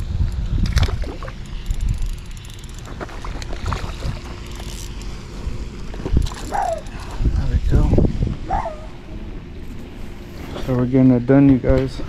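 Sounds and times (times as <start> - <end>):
wind buffeting microphone: 0.0 - 4.6, 5.3 - 10.0
fishing reel clicking: 1.4 - 3.5, 4.4 - 5.3, 6.2 - 7.2.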